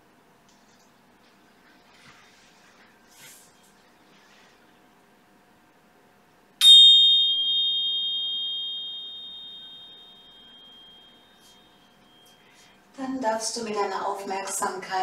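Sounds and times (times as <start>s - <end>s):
small cymbals ringing: 6.6s - 12.8s.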